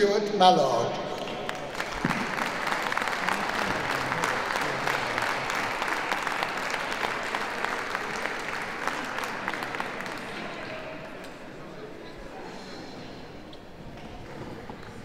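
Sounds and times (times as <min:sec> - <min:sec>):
audience applauding: 0:01.2 - 0:11.0.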